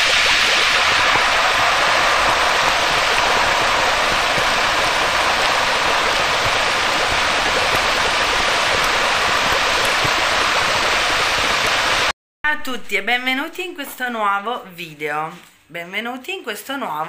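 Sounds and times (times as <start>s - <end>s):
steady rushing hiss: 0.0s - 12.1s.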